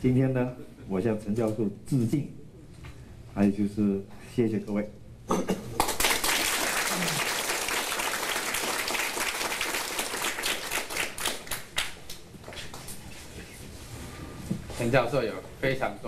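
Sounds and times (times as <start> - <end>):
audience applauding: 5.8 - 12.2.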